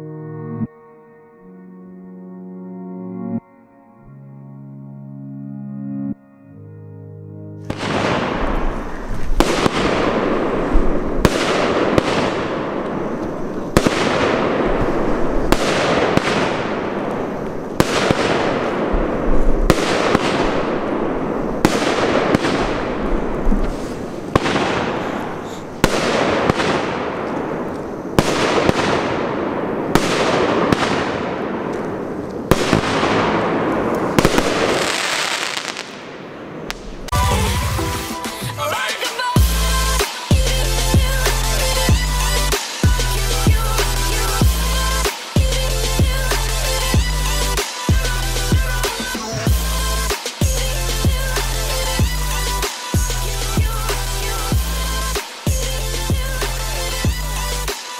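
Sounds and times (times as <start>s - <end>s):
firework launch bangs: 7.7s - 38.4s
firework crackling bursts: 7.7s - 57.9s.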